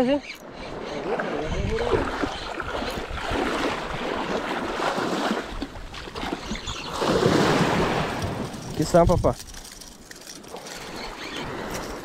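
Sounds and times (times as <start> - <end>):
wind on microphone: 0.5 - 9.9
surf washing on shore: 1.0 - 9.2.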